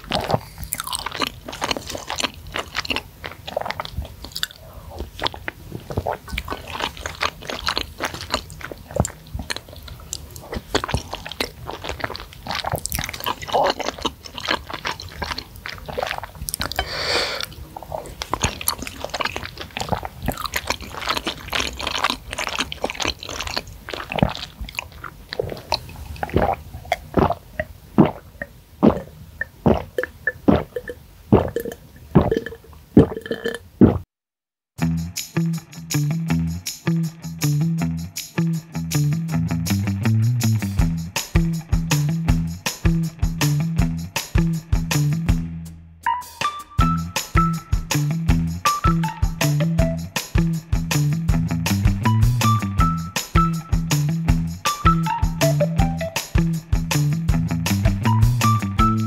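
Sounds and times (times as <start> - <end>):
wet chewing and lip smacks: 0.0 - 33.6
sipping and swallowing: 0.0 - 34.0
slurping noodles: 0.0 - 34.0.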